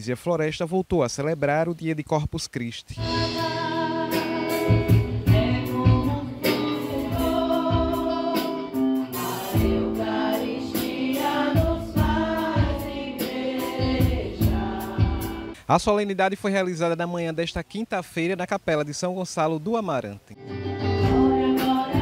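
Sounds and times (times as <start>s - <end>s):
congregation singing: 3.0s - 15.6s, 20.4s - 22.0s
drum kit beat: 3.0s - 15.6s, 20.5s - 22.0s
guitar: 3.0s - 15.6s, 20.4s - 22.0s
keyboard: 3.0s - 15.6s, 20.4s - 22.0s
woman singing lead: 3.0s - 15.6s, 20.4s - 22.0s.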